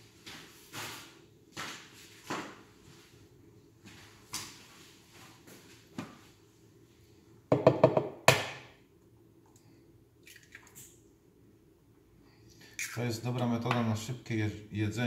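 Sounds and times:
egg knocking against cup rim: 0:07.5 - 0:08.5.

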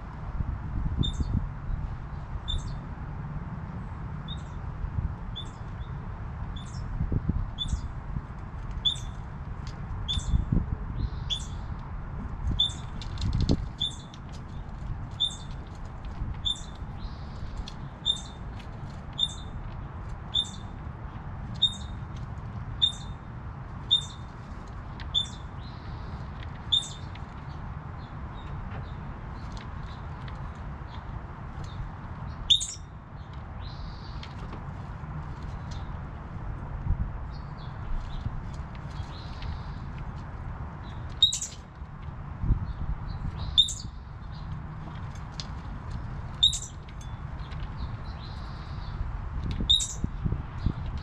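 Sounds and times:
high animal chirp call: 0:32.5 - 0:32.9, 0:41.2 - 0:41.6, 0:46.4 - 0:46.8, 0:49.7 - 0:50.0.

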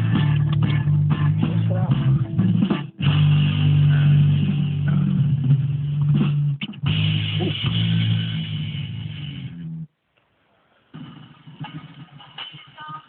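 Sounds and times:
muffled guitar and bass music: 0:00.0 - 0:09.9.

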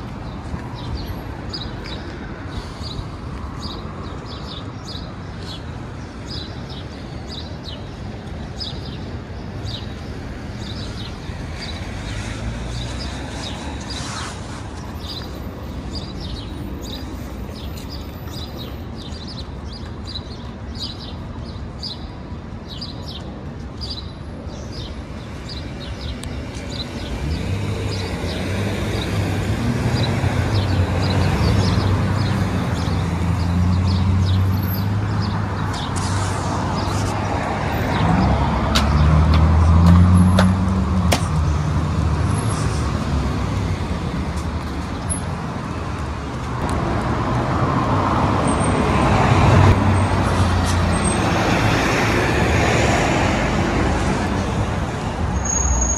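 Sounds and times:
vehicle engines passing: 0:00.0 - 0:55.9
small birds chirping: 0:00.2 - 0:29.2, 0:30.0 - 0:39.1.

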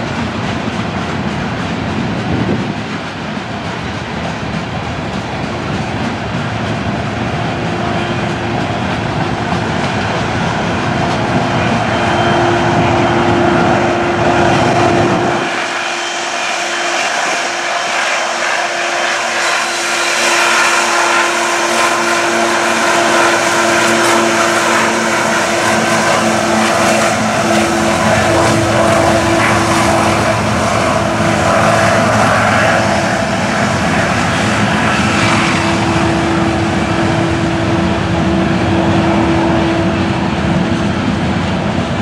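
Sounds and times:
diesel locomotive running hard: 0:00.0 - 0:42.0
low held tone: 0:07.3 - 0:41.6.

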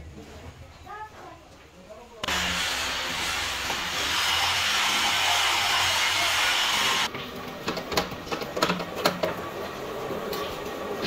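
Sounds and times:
loud steady hissing: 0:02.2 - 0:07.1.

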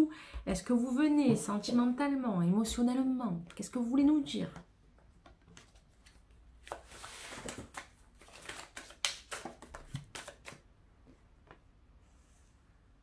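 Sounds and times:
cards being shuffled: 0:05.3 - 0:10.6.

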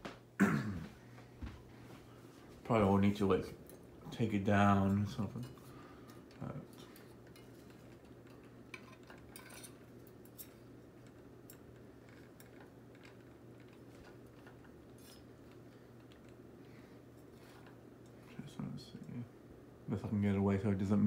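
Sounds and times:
ceiling fan humming: 0:00.0 - 0:21.0.

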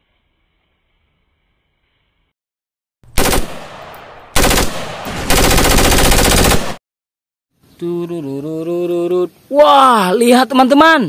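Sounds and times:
automatic rifle gunfire: 0:03.1 - 0:06.8.

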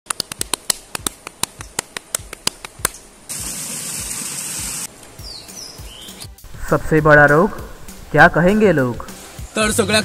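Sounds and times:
loud steady hiss: 0:03.2 - 0:05.2.

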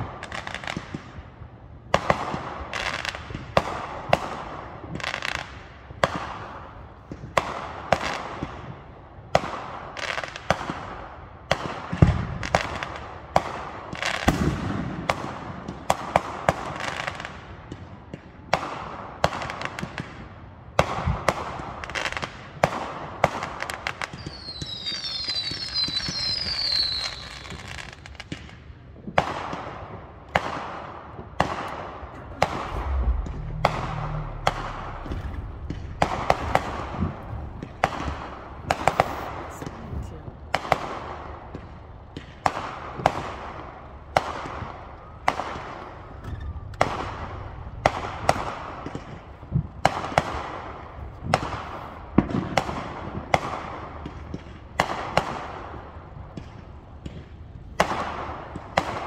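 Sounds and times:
fireworks bangs and crackling: 0:00.0 - 0:59.0
falling firework whistles: 0:24.0 - 0:28.0
deep fireworks booms: 0:29.1 - 0:59.0.

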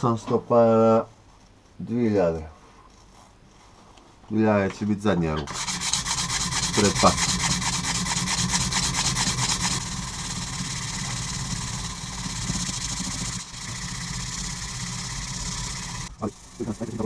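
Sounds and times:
sandpaper rasping on metal: 0:05.5 - 0:13.9.

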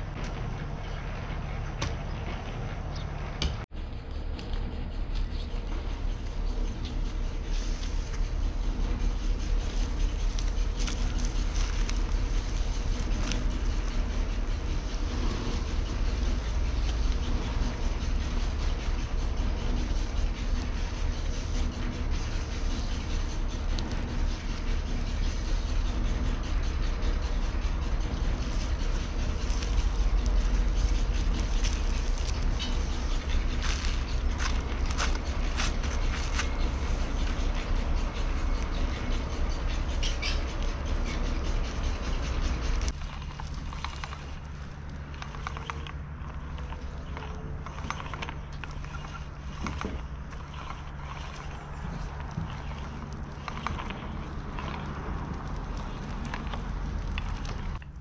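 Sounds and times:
low outdoor rumble: 0:00.0 - 0:58.0.

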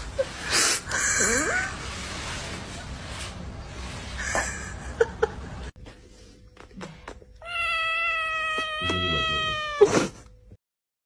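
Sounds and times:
cat meowing: 0:07.4 - 0:09.9.

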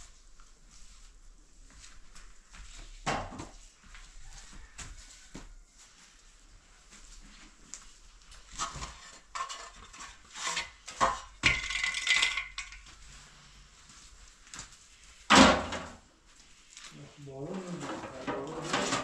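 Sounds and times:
boards scraping: 0:08.6 - 0:12.2, 0:17.5 - 0:19.0
wooden boards knocking and clattering: 0:08.6 - 0:12.8, 0:15.3 - 0:16.0, 0:17.9 - 0:19.0.

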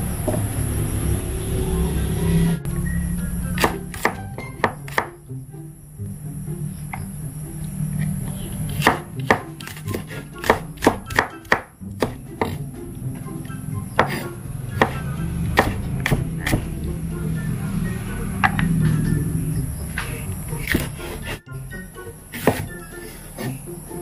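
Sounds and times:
background music: 0:00.7 - 0:24.0
knife chopping on wooden board: 0:03.6 - 0:05.2, 0:08.7 - 0:12.6, 0:14.0 - 0:16.7, 0:20.6 - 0:21.4, 0:22.3 - 0:23.6.

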